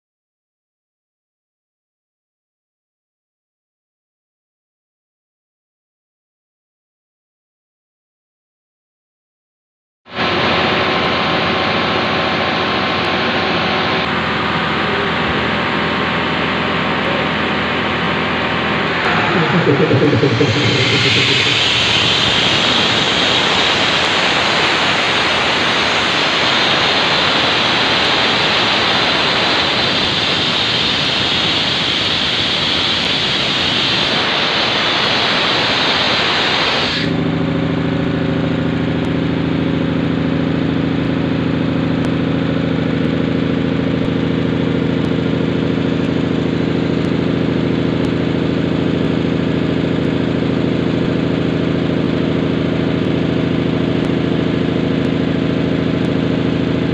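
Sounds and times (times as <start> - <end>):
air compressor drone: 10.2 - 45.5.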